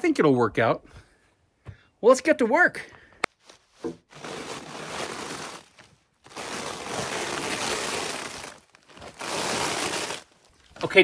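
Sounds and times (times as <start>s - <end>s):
stiff sheet material crackling: 4.1s - 11.0s.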